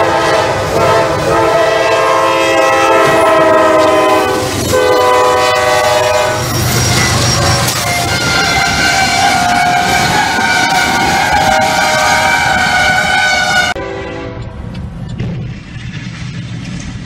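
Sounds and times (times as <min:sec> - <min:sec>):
locomotive air horn: 0:00.0 - 0:14.5
train rumbling past: 0:00.0 - 0:17.0.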